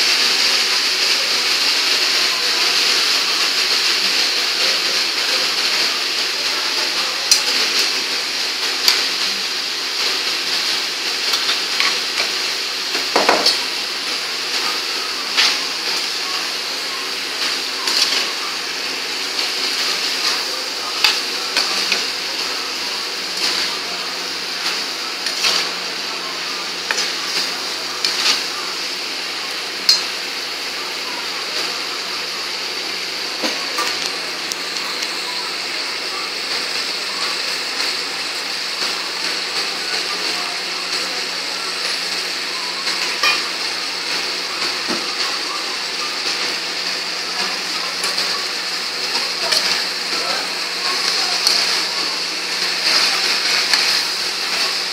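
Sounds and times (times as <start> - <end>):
frying hiss: 0.0 - 54.9.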